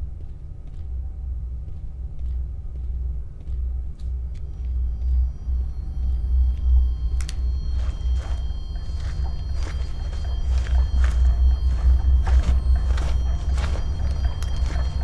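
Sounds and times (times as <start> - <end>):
deep rumbling drone: 0.0 - 15.0
thin high sustained tones: 5.2 - 15.0.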